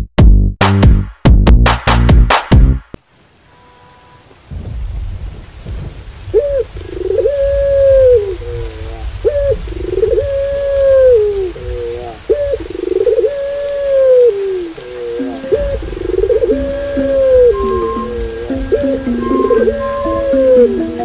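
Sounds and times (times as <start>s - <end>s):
steady rain: 3.0s - 21.0s
dove cooing: 6.3s - 21.0s.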